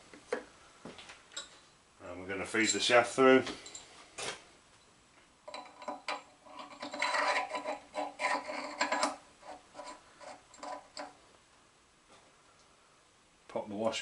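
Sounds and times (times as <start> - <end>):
metal shaft scraping and clicking: 5.5 - 11.2.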